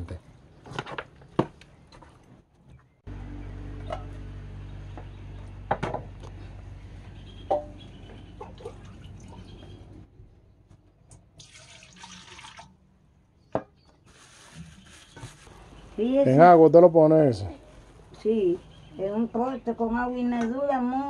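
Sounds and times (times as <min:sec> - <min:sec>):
liquid splashing: 0:11.4 - 0:12.8.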